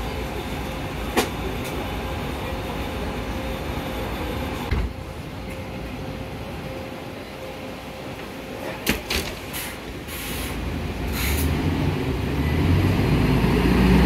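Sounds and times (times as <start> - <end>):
city bus humming: 0.0 - 14.0.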